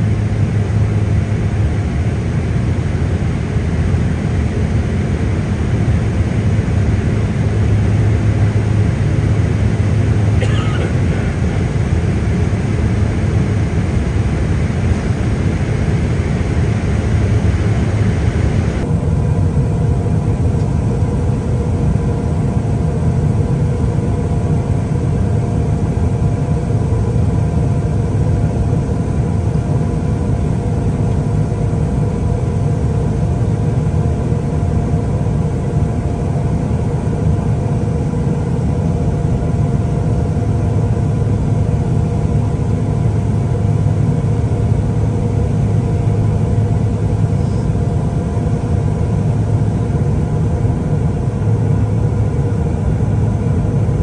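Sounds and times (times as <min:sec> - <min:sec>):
engine drone: 0:00.0 - 0:54.0.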